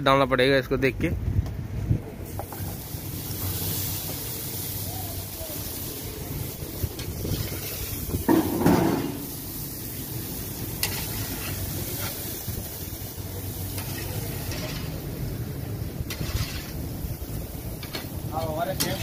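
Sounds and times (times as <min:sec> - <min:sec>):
chicken sizzling on grill: 0:02.2 - 0:19.0
metal paddle scraping grate: 0:16.1 - 0:16.7.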